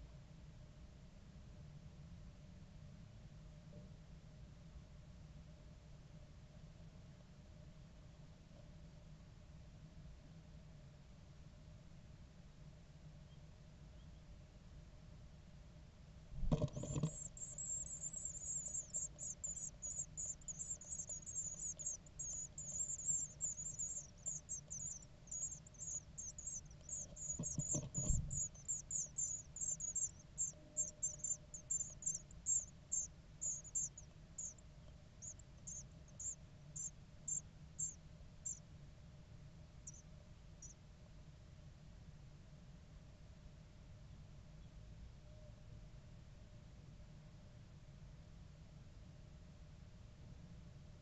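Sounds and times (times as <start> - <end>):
nestlings begging calls: 16.5 - 34.6, 35.2 - 38.6.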